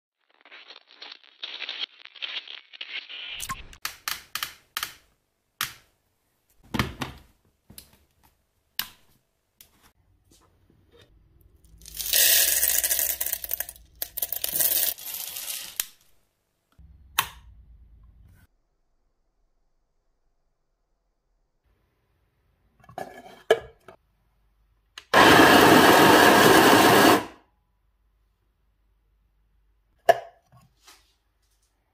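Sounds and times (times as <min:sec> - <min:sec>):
coffee beans pouring: 0:00.2 - 0:03.4, 0:11.7 - 0:16.0
beans rattling and clicking: 0:11.7 - 0:15.9.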